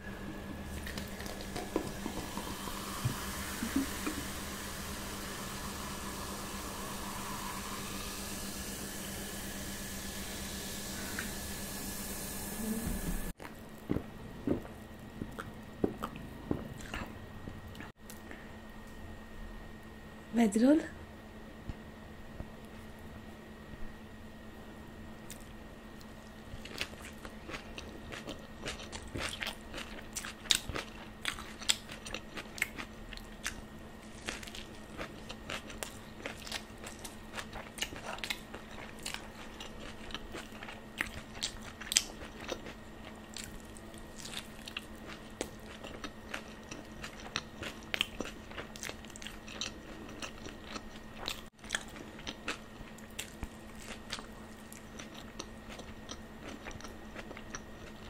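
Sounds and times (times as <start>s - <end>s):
chewing and crunching: 0.7s - 2.6s, 13.4s - 18.3s, 25.2s - 58.0s.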